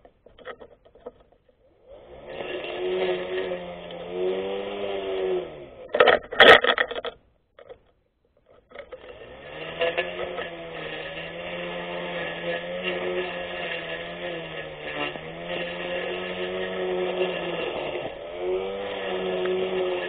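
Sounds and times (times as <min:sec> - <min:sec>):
electric grass cutter motor whining: 0:01.7 - 0:06.3, 0:08.8 - 0:20.0
sharp clattering knocks: 0:05.8 - 0:09.2.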